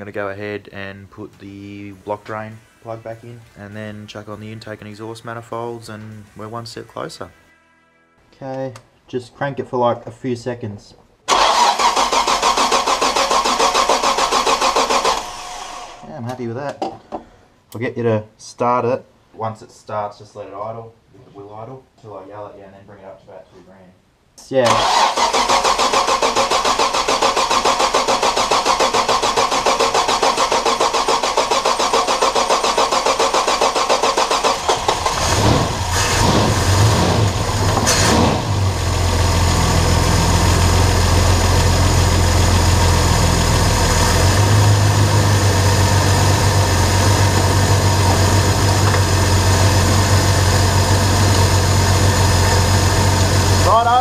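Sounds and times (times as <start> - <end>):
engine cranking and starting: 11.3 - 16.0, 24.7 - 41.0, 43.6 - 53.6
engine revving then idling: 24.8 - 53.7.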